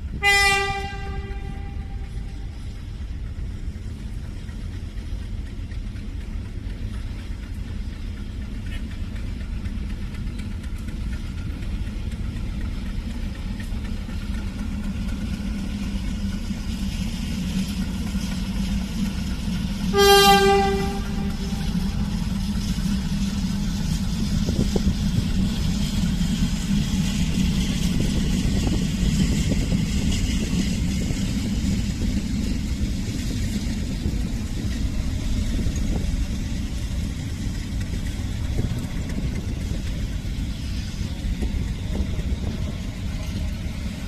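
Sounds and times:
coaches rumbling over rails: 0.0 - 44.0
diesel locomotive running: 0.0 - 44.0
train horn blast: 0.2 - 2.2, 19.9 - 21.8.

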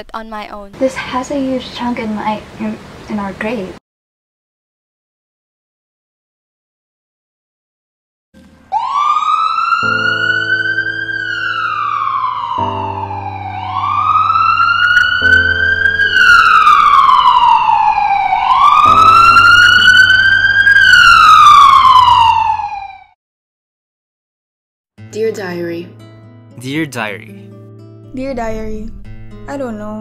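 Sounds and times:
wailing siren: 8.6 - 23.2.

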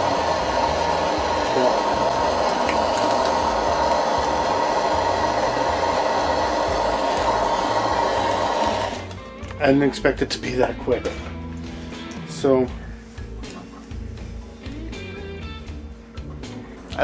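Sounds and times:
blowtorch hissing: 0.0 - 9.2.

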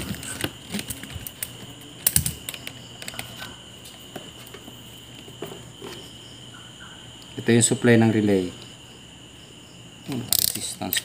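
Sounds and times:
multimeter and test leads clicking: 0.0 - 4.0.

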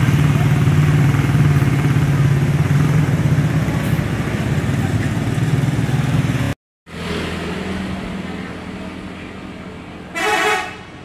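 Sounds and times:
bus and motorcycle engines passing: 0.0 - 11.0
vehicle horn honk: 10.1 - 10.9.

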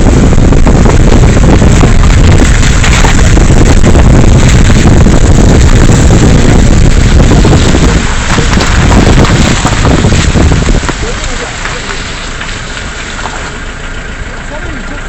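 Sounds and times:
wind noise on microphone: 0.0 - 13.3
vehicle rumbling on rough road: 0.0 - 15.0.

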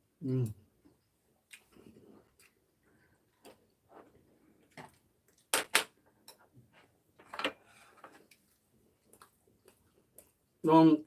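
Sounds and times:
light chewing: 0.4 - 5.4, 8.1 - 10.6.

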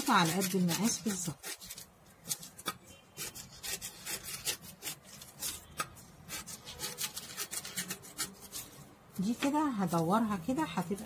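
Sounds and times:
scissors snipping paper: 0.0 - 8.7.

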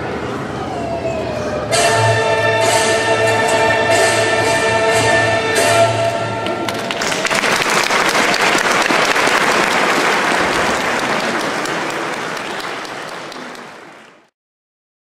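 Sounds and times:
audience applauding: 6.4 - 14.3.

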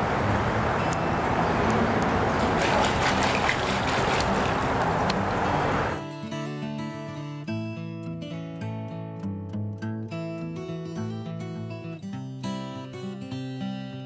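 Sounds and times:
creek water running: 0.0 - 6.0
small clicks and splashes: 1.6 - 6.0.

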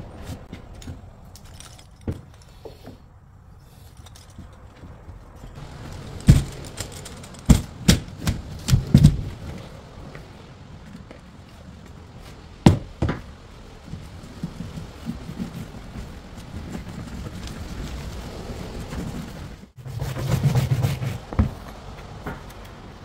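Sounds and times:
faint workshop noise: 0.0 - 23.0
sharp knocks and thuds: 4.4 - 10.2, 12.6 - 17.3, 20.7 - 22.6.

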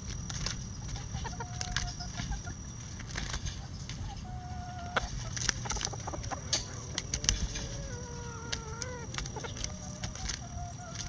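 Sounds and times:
chicken beaks tapping: 0.0 - 11.0
chicken call: 4.0 - 11.0.

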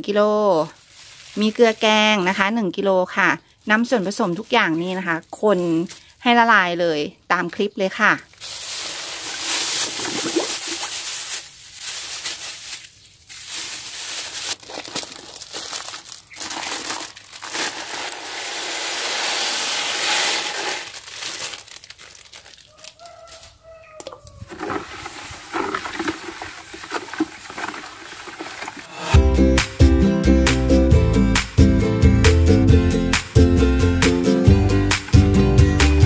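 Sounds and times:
plastic bags crinkling: 0.6 - 2.5, 3.6 - 6.4, 8.3 - 23.8, 24.4 - 28.9
granules pouring into water: 8.4 - 11.4, 14.2 - 22.7, 24.5 - 28.9
stick stirring water in bucket: 8.7 - 11.0, 17.6 - 20.9, 24.0 - 29.1.

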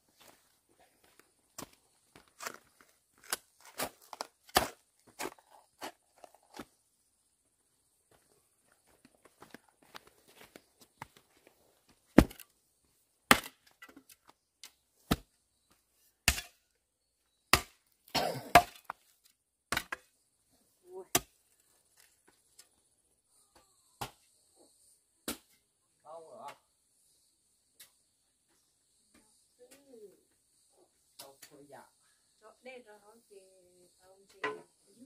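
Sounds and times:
wood chopping strikes: 3.2 - 5.9, 12.2 - 12.4, 13.3 - 14.0, 16.2 - 16.6, 17.5 - 19.0.

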